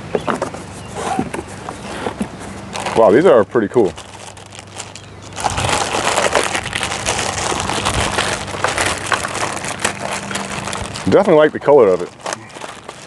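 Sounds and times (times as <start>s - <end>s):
plastic packaging crinkling: 2.7s - 13.0s.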